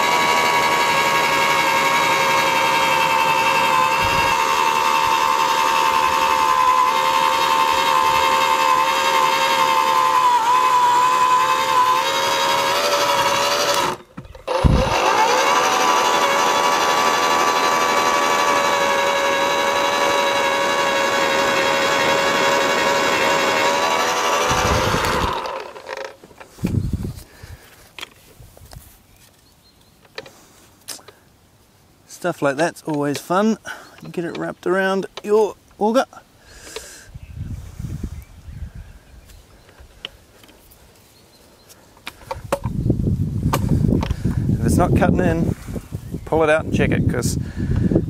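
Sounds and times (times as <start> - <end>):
post hole borer motor whining: 0.0 - 27.3, 43.4 - 46.4.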